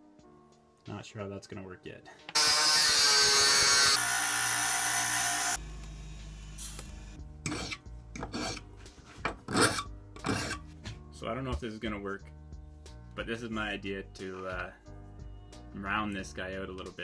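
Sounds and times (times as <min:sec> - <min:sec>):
power tool cutting steel: 0:02.3 - 0:06.8
hand file rasping on steel: 0:07.5 - 0:10.7.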